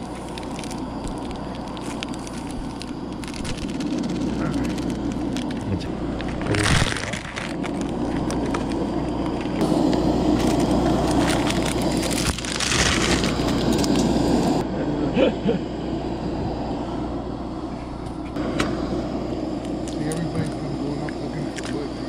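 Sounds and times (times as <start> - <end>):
noodle packet crinkling: 0.0 - 9.6, 10.3 - 14.0.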